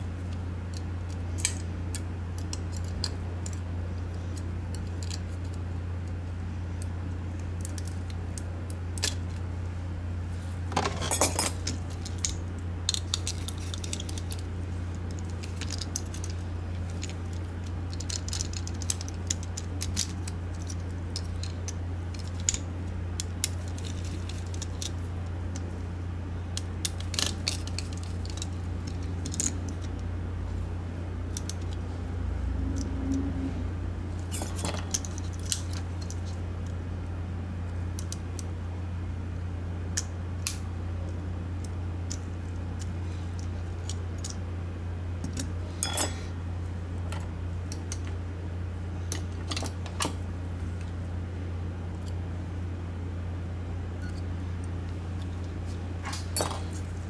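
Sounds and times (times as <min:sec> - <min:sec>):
steady low hum: 0:00.0 - 0:57.0
plastic parts clicking and clattering: 0:10.7 - 0:25.7, 0:26.6 - 0:30.0, 0:34.2 - 0:36.4.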